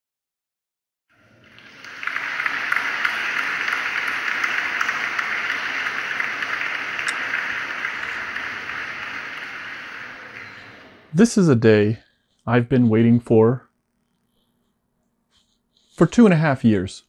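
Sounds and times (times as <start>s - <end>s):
large audience applauding: 1.1s - 11.2s.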